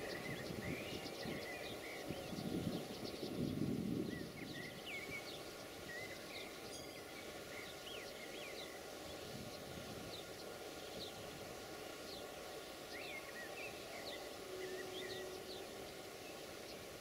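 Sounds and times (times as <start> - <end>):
small birds chirping: 0.0 - 17.0
diesel train rumble: 8.8 - 17.0.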